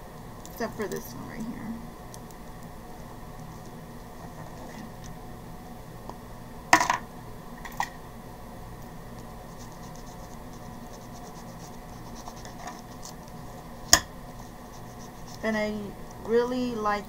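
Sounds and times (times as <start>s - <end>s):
scratchy rubbing on paper: 4.3s - 4.9s, 9.5s - 13.3s, 14.3s - 15.6s.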